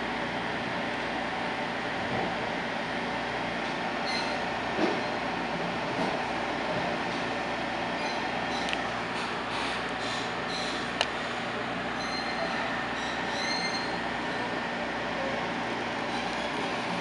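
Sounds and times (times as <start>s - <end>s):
train wheels rumbling on rail: 0.0s - 17.0s
high wheel squeals: 4.0s - 4.4s, 8.0s - 8.8s, 10.0s - 10.9s, 11.9s - 14.5s.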